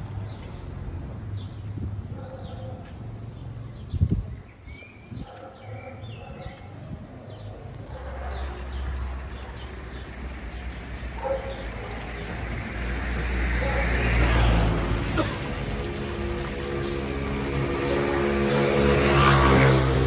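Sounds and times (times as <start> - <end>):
small birds chirping: 2.8 - 19.1
water trickling from fountain: 7.8 - 20.0.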